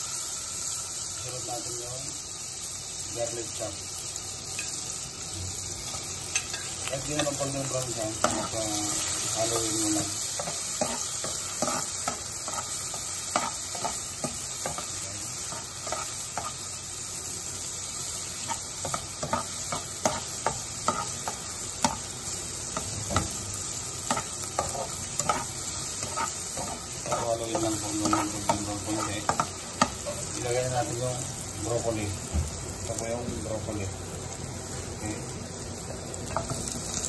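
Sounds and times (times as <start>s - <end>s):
garlic sizzling in hot oil: 0.0s - 37.0s
spatula scraping and tapping pan: 10.4s - 14.9s, 18.4s - 22.0s, 24.1s - 30.2s.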